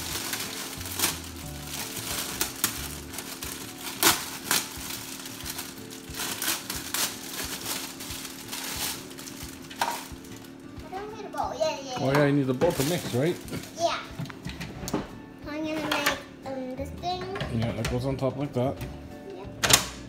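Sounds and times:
plastic packaging crinkling: 0:00.0 - 0:10.7, 0:12.1 - 0:13.9.

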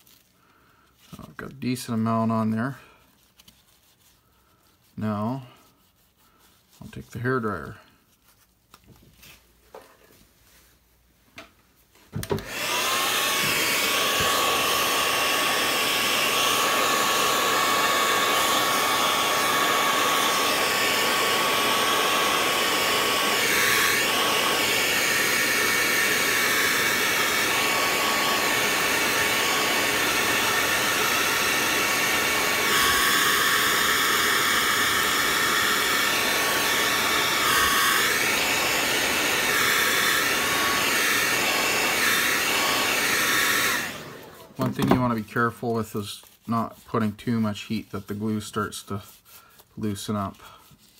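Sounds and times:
hair dryer blowing: 0:12.1 - 0:47.1.

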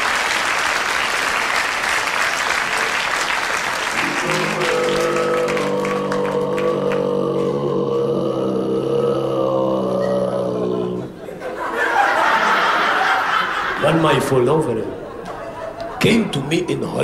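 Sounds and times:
audience applauding: 0:00.0 - 0:07.2.

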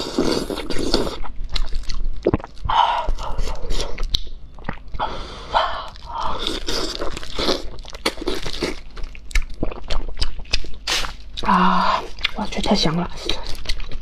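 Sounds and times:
chewing and smacking clicks: 0:04.0 - 0:04.8.

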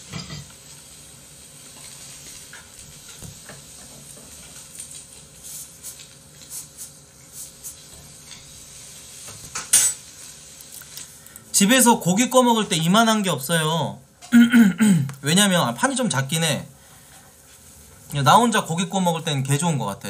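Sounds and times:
meat sizzling: 0:00.0 - 0:13.8.

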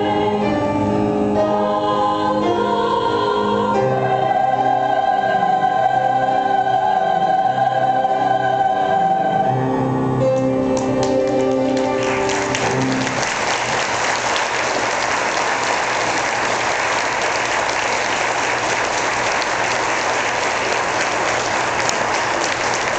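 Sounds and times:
choir holding a chord: 0:00.0 - 0:22.9
audience applause: 0:10.8 - 0:22.9.

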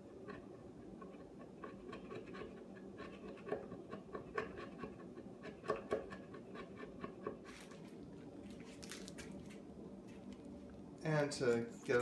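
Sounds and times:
chisel scraping wood: 0:00.1 - 0:07.8.

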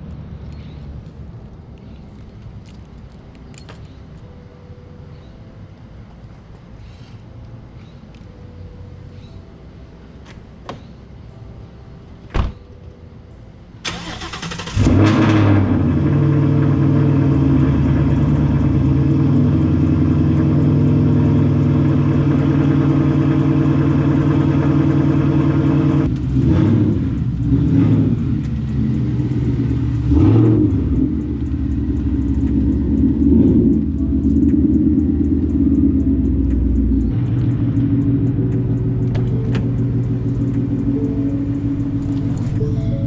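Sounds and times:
car engine starting and idling: 0:07.6 - 0:43.0
thump: 0:12.3 - 0:12.6
engine revving: 0:13.9 - 0:43.0.

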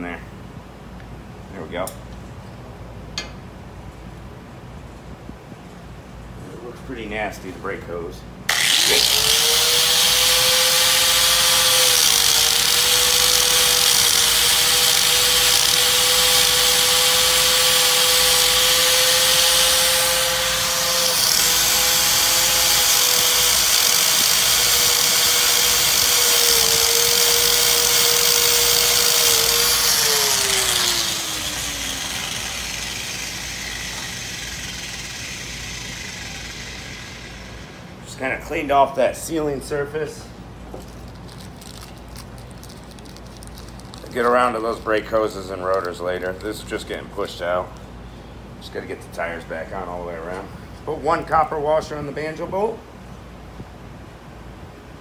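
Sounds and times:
electric grinder whining: 0:08.5 - 0:38.0.

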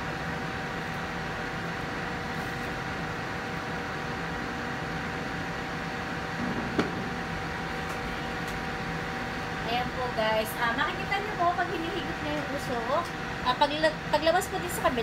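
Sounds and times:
fan rushing air: 0:00.0 - 0:15.0.

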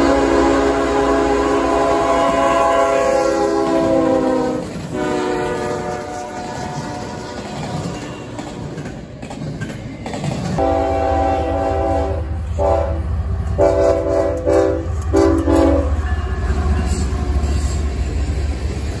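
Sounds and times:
locomotive horn blasts: 0:00.0 - 0:07.5, 0:10.6 - 0:17.2.

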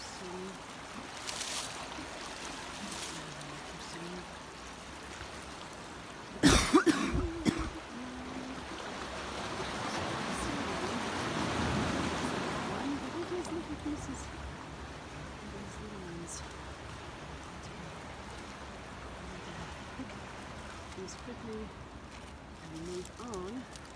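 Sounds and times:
faint steady hiss: 0:00.0 - 0:23.9
person coughing: 0:06.4 - 0:07.8.

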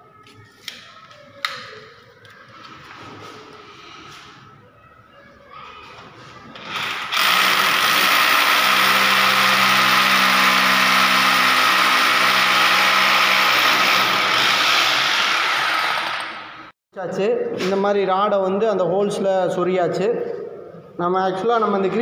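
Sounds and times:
electric drill boring into wall: 0:06.6 - 0:16.6.

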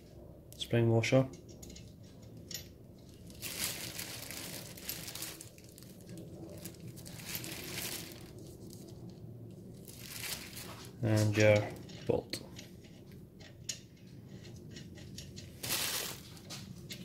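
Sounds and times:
wrapping crinkling and rustling: 0:03.0 - 0:09.0, 0:09.8 - 0:11.4, 0:15.4 - 0:16.7.

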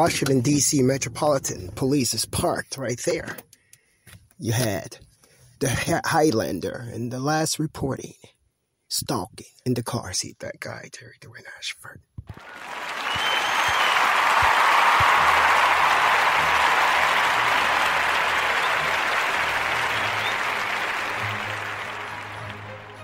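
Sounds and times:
applause: 0:12.3 - 0:23.0
low steady music notes: 0:19.4 - 0:23.0.

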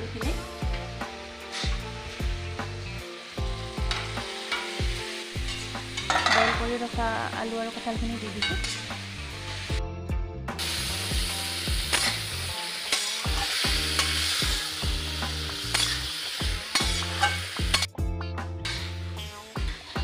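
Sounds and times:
food sizzling in hot oil: 0:00.0 - 0:09.8, 0:10.6 - 0:18.0, 0:18.6 - 0:20.0
spatula scraping and clinking pan: 0:03.8 - 0:06.7, 0:08.3 - 0:09.0, 0:16.7 - 0:17.9.

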